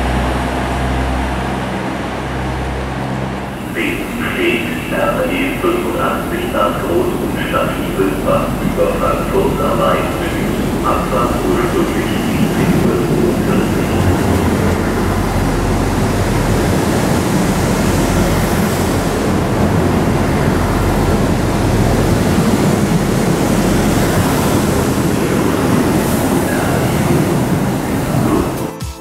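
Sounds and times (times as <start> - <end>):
diesel engine drone: 0.0 - 28.7
train wheels rolling on rails: 0.0 - 28.7.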